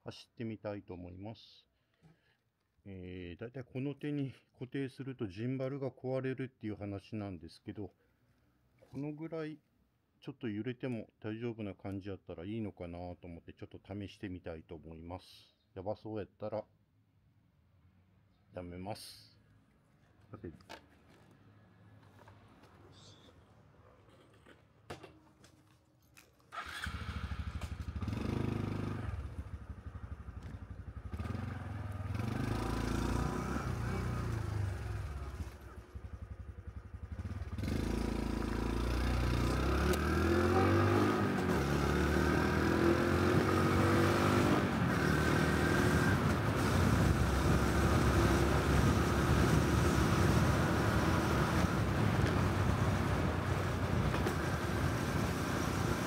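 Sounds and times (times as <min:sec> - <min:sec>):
motorcycle engine running: 0:26.8 - 0:40.8.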